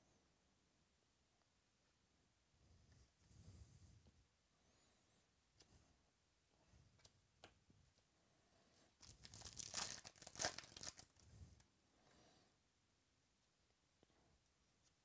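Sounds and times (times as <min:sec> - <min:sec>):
foil wrapper crinkling: 0:09.0 - 0:11.2.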